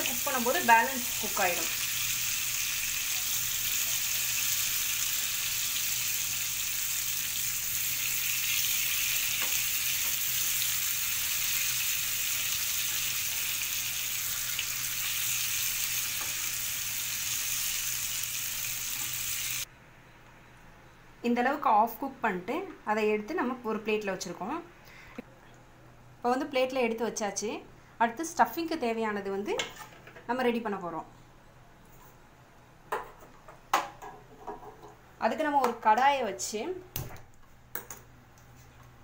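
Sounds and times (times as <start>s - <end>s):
oil sizzling in a pan: 0.0s - 19.7s.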